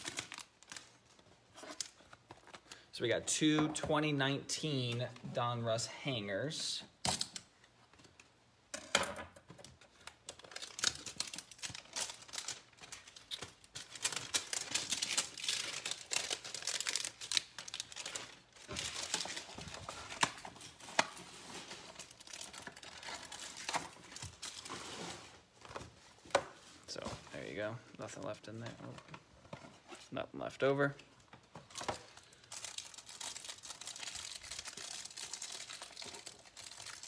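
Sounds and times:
packaging crinkling: 0.0s - 2.8s, 9.9s - 25.2s, 31.6s - 37.0s
cards rustling: 31.4s - 37.0s.

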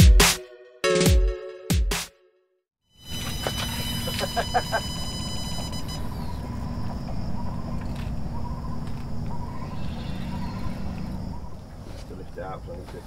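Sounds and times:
high thin whine: 3.0s - 6.1s
bird hooting: 8.3s - 11.6s.

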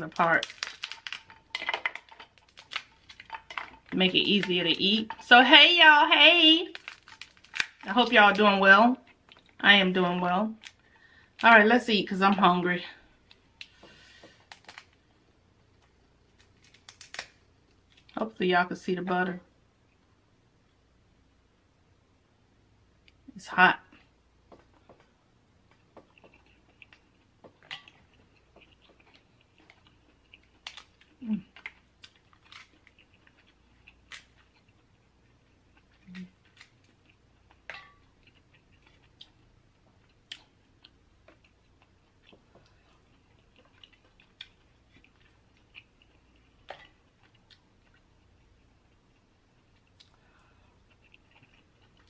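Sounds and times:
mouth clicks and smacks chewing: 40.1s - 52.0s.

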